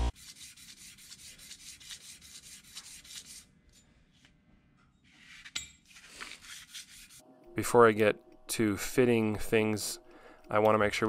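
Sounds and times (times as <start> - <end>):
metal rubbed on sandpaper: 0.1 - 3.5, 5.1 - 7.2.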